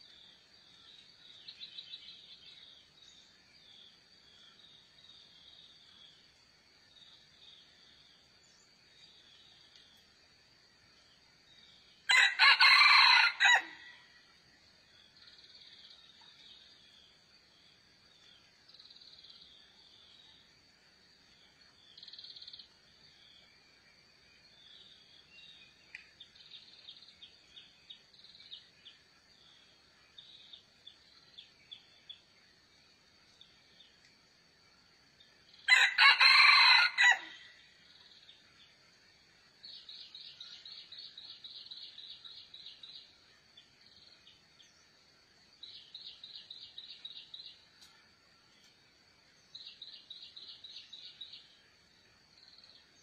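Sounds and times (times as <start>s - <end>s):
rooster crowing: 12.1s - 14.0s, 35.7s - 37.6s.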